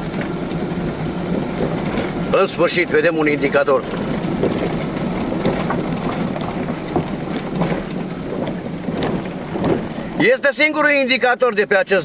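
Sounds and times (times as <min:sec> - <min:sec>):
tyre and road rumble: 0:00.0 - 0:11.3
loose stones clicking and rattling: 0:03.4 - 0:10.0.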